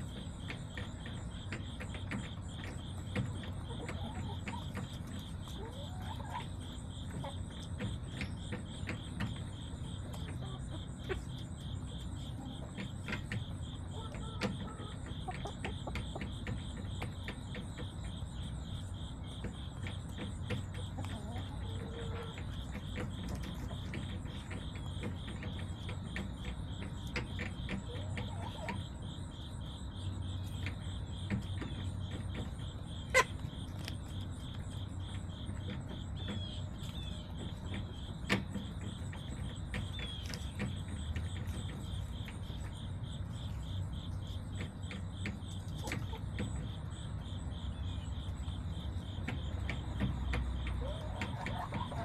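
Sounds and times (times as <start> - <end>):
crickets chirping: 0.0 - 52.0.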